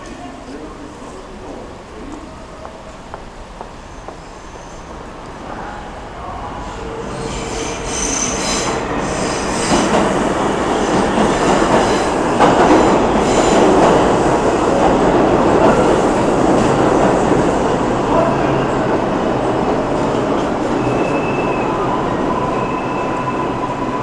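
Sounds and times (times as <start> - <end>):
subway train rumble: 0.0 - 24.0
subway wheels squealing on rails: 3.7 - 24.0.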